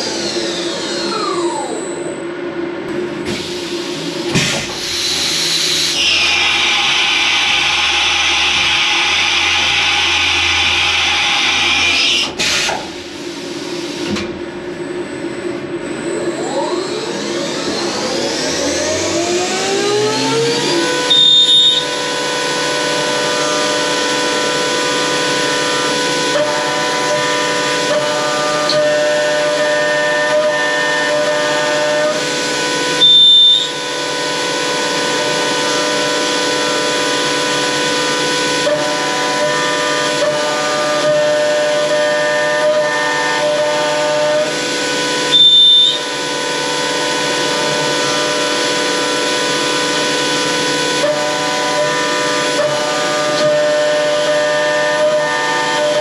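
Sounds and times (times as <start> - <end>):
milling machine spindle whine: 0.0 - 56.0
end mill cutting metal: 4.3 - 12.8, 16.7 - 56.0
high whistle bursts: 21.0 - 22.0, 33.0 - 33.8, 45.3 - 46.1.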